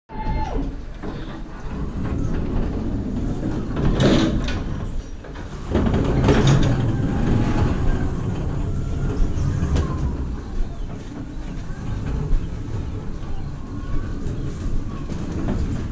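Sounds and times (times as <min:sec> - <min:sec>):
pallet stacker wheels rumbling: 0:00.4 - 0:15.9
pallets clattering: 0:00.6 - 0:15.9.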